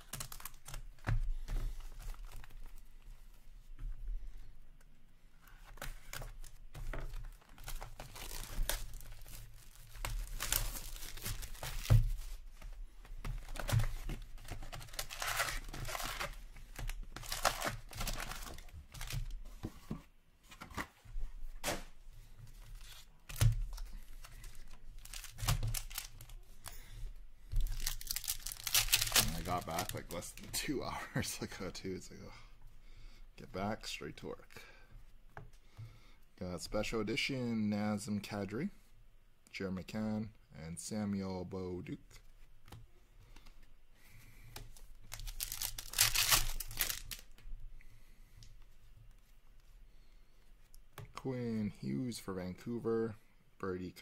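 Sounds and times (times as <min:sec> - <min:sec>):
foil wrappers tearing and crinkling: 0:17.2 - 0:19.1, 0:25.0 - 0:26.3, 0:27.6 - 0:30.2, 0:45.1 - 0:47.3.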